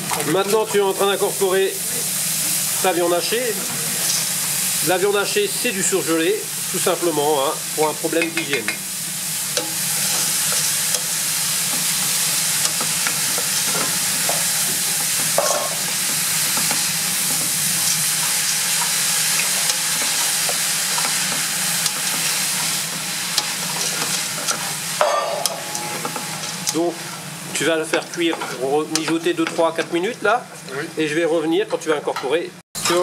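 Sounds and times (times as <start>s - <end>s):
meat sizzling in a pot: 0.0s - 33.0s
wooden spoon scraping a pot: 9.8s - 27.3s.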